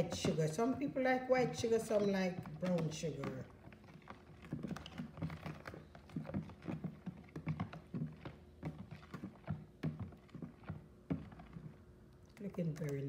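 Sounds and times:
liquid sloshing in bowl: 0.0s - 13.0s.

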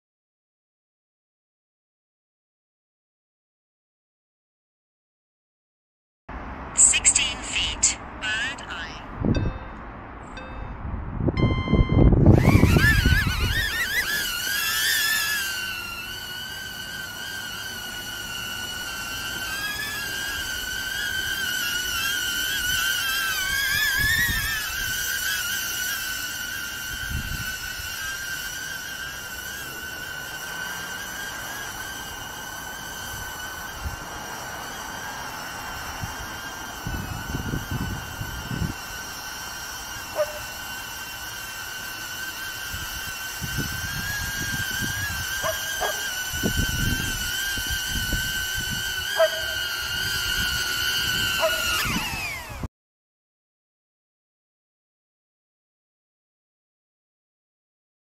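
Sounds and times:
drone propellers whining: 6.4s - 52.7s.

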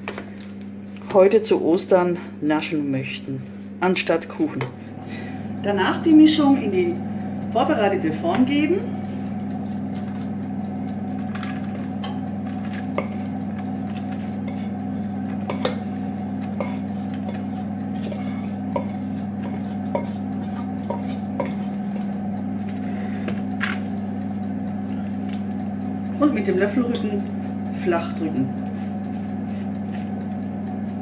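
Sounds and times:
steady low hum: 0.0s - 31.0s
wooden spoon scraping a metal pot: 12.5s - 13.2s, 13.9s - 15.8s, 16.5s - 22.0s.

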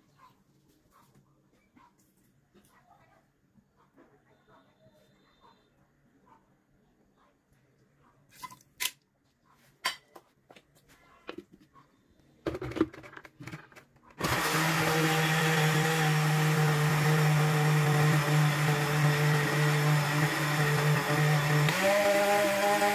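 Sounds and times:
blender motor humming: 14.2s - 22.9s.

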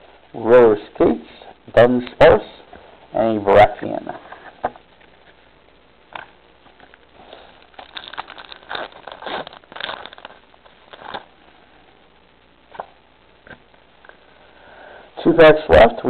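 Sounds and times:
foil wrapper crinkling and tearing: 6.7s - 11.4s.

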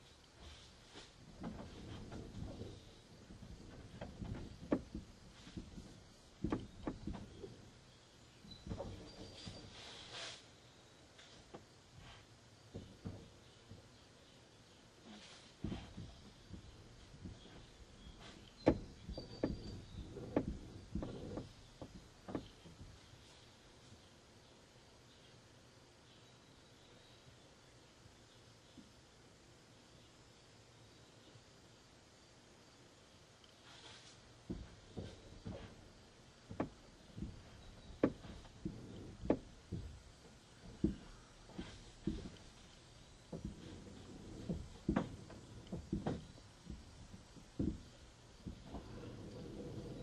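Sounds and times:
dull knocks and thumps on car: 1.4s - 7.6s, 15.6s - 23.0s, 36.5s - 42.6s, 43.3s - 50.0s.

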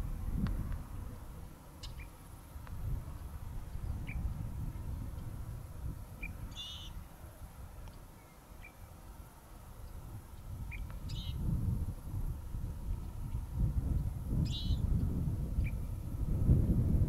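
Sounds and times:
steady low rumble: 0.0s - 17.0s
birds chirping: 1.7s - 2.2s, 3.6s - 4.3s, 5.9s - 7.2s, 7.9s - 9.1s, 10.6s - 11.5s, 14.4s - 14.9s
buzzy bird calls: 6.2s - 7.0s, 10.7s - 11.4s, 14.4s - 14.8s.

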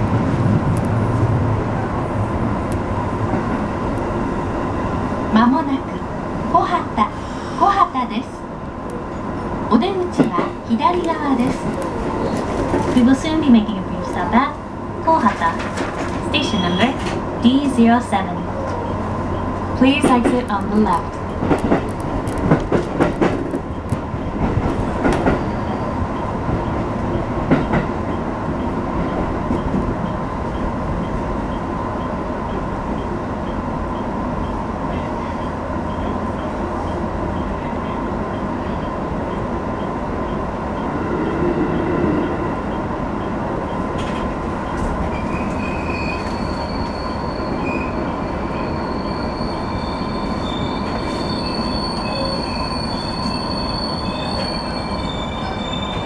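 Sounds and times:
train rumble: 0.0s - 56.0s
high brake squeal: 16.4s - 17.0s, 25.3s - 25.9s, 45.1s - 56.0s.

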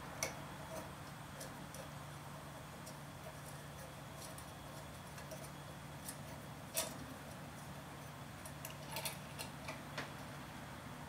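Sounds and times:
small metal parts clicking: 2.8s - 7.3s, 8.4s - 9.8s.

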